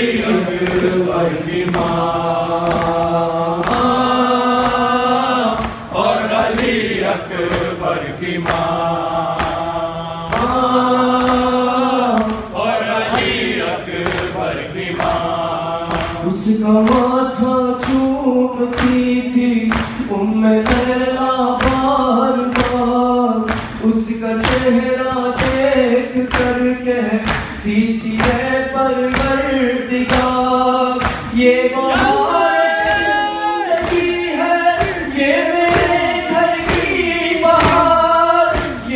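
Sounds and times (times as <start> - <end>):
man singing into a microphone: 0.0 - 13.2, 15.1 - 38.9
voices singing along: 0.0 - 38.9
hands beating chests: 1.6 - 9.7, 10.3 - 16.2, 31.0 - 38.9.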